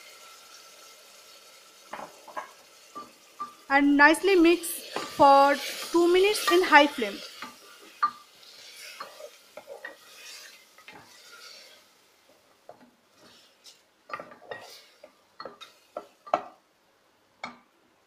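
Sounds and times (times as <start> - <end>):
meat sizzling: 0.0 - 17.6
wooden spatula scraping metal pot: 4.3 - 12.0, 12.7 - 16.5.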